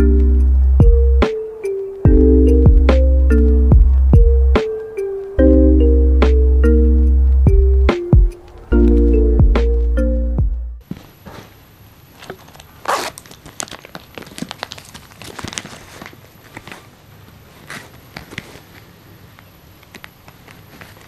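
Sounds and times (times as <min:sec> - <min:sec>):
plastic pouch crinkling: 0:12.1 - 0:21.0.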